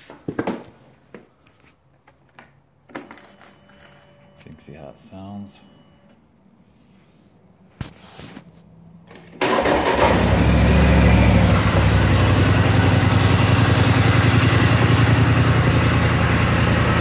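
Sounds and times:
engine cranking and idling: 9.1s - 17.0s.

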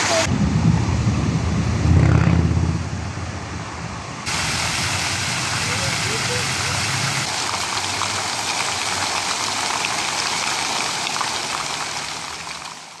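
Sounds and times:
fountain water splashing into pool: 0.0s - 0.3s, 4.3s - 13.0s.

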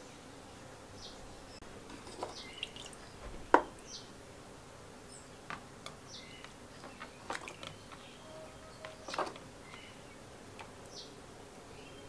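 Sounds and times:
metal clinking on plastic tub: 6.9s - 7.8s.

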